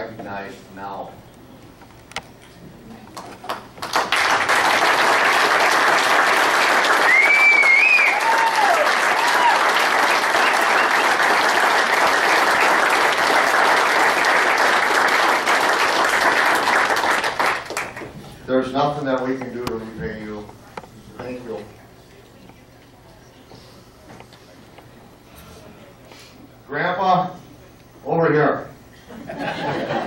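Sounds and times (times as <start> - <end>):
crowd applauding: 3.2 - 18.1
short cheers: 7.0 - 11.0.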